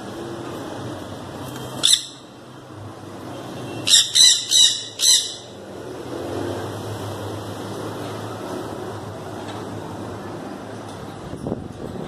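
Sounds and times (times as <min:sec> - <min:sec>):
parrot screeching: 0:01.8 - 0:02.2, 0:03.8 - 0:05.6.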